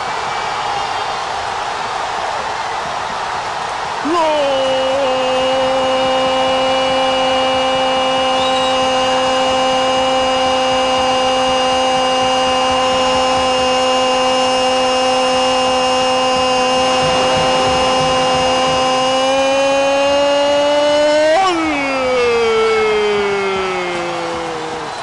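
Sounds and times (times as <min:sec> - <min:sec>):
stadium crowd noise: 0:00.0 - 0:25.0
commentator's long goal cry: 0:16.0 - 0:24.9.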